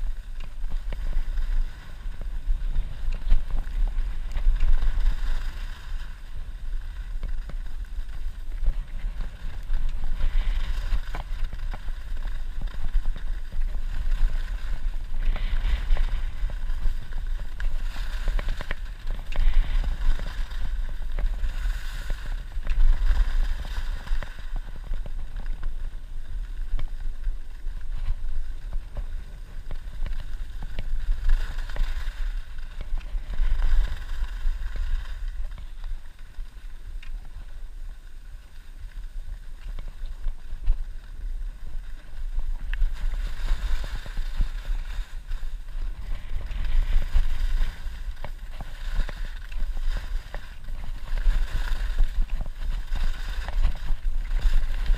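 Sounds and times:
skis scraping on packed snow: 0.0 - 54.9
wind buffeting microphone: 0.0 - 54.9.

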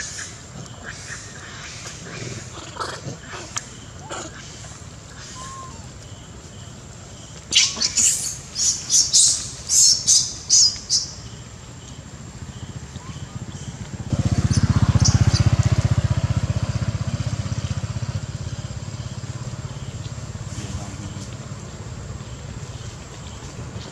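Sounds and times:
shrill squeaky animal calls: 5.2 - 5.9
vehicle engine rumble: 11.1 - 23.9.

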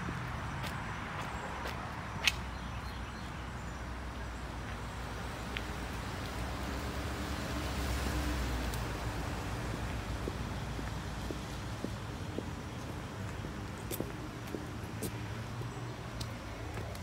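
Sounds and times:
road traffic rumble: 0.0 - 17.0
vehicle passing: 5.0 - 17.0.

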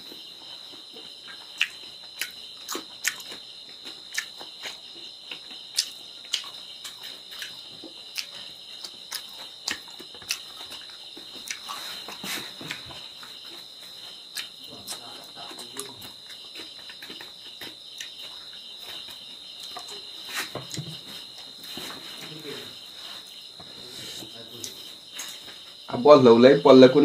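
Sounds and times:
wet chewing and lip smacking: 1.4 - 11.8, 14.3 - 20.9.

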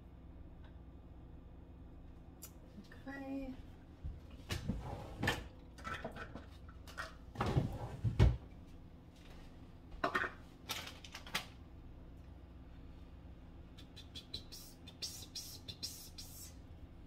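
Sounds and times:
faint steady hum: 0.0 - 17.0
kitchen items knocking and clattering: 4.5 - 8.4, 10.0 - 11.4.

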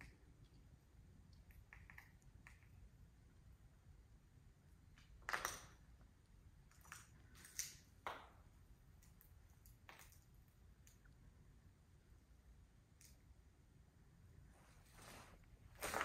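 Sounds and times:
footsteps scuffing on debris: 15.8 - 16.0.

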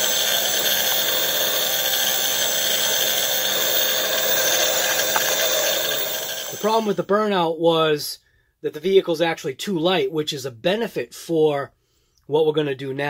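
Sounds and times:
electric motor whining: 0.0 - 7.0.

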